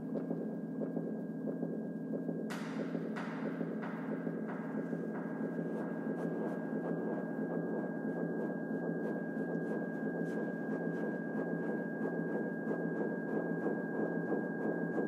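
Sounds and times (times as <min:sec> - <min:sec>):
grainy electronic drone: 0:00.1 - 0:08.7.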